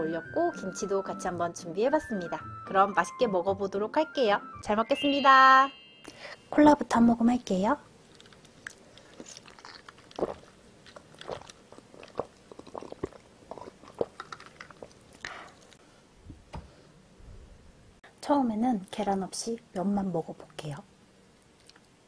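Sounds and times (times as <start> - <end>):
sipping and swallowing: 8.1 - 15.8
wet mouth clicks: 8.1 - 15.8, 21.4 - 22.0.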